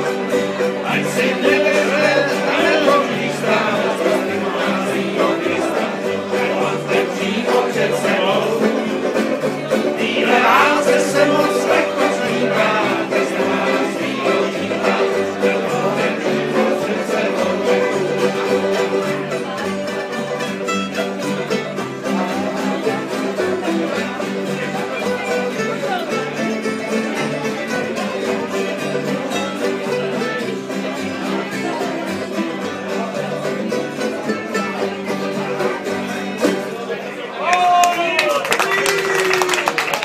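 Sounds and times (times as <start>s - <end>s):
banjo picking: 0.0s - 37.3s
string instruments playing: 0.0s - 40.0s.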